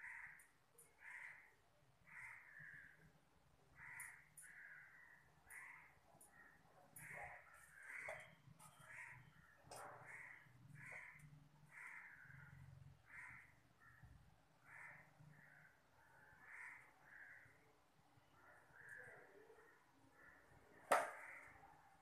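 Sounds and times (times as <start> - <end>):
faint bird caws: 0.0 - 21.9.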